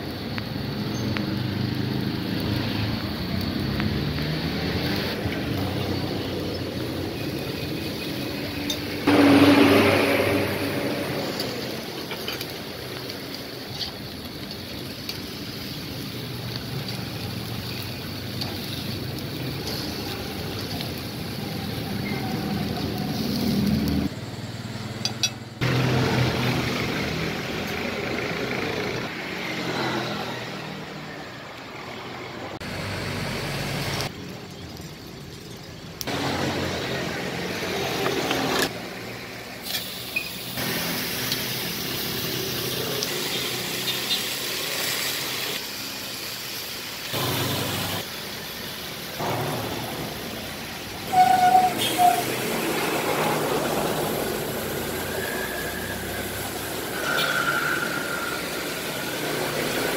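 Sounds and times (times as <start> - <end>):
traffic passing: 0.0 - 59.9
brief loud noise: 9.1 - 11.6.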